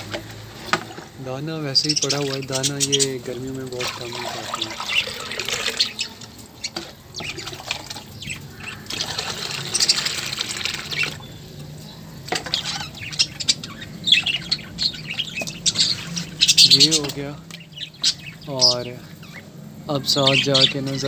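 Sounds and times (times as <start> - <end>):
budgerigars chirping: 1.3 - 21.0
water splashing into bowl: 3.5 - 11.3.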